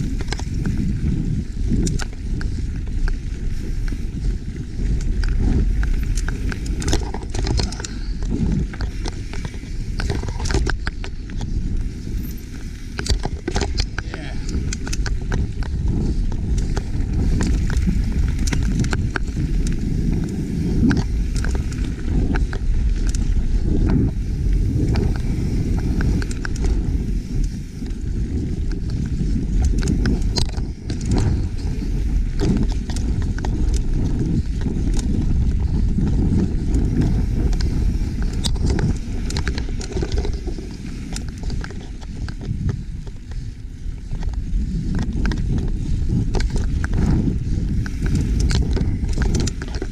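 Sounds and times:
bike clicks and rattles: 0.0s - 49.9s
bike tyres on dirt: 0.0s - 49.9s
wind buffeting microphone: 0.0s - 49.9s.

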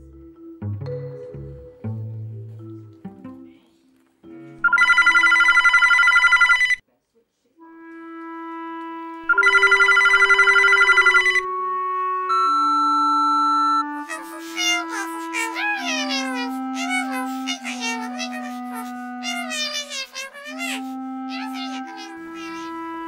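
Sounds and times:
telephone ringing: 4.6s - 6.8s, 9.3s - 11.5s
held musical notes: 7.6s - 23.0s.

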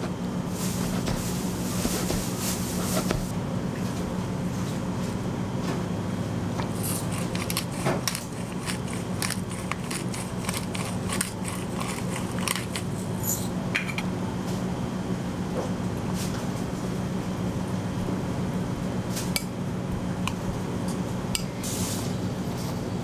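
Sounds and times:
steady low hum: 0.0s - 23.0s
pepper mill grinding: 6.7s - 13.4s.

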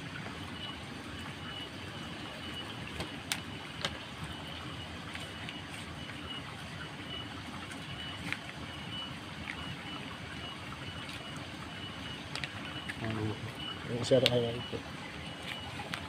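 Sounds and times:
faint high-pitched tone pulses: 4.3s - 15.9s.

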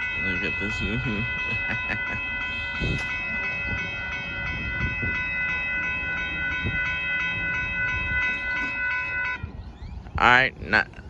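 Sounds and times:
passing train rumble: 0.0s - 11.0s
railroad crossing bells ringing: 0.0s - 11.0s.

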